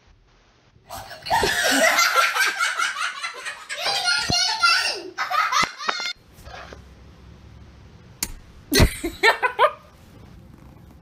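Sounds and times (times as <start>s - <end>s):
child giggling and laughing: 0.9s - 6.2s.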